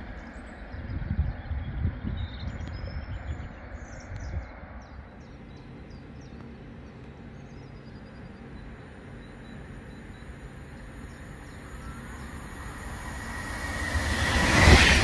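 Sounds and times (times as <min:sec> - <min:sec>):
small birds chirping: 0:00.2 - 0:13.2
steady hum: 0:05.2 - 0:15.0.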